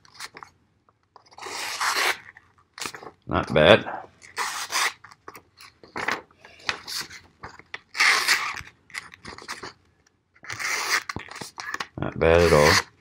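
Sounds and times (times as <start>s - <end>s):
knife slicing paper: 4.3s - 5.0s, 7.9s - 8.6s, 12.3s - 12.9s.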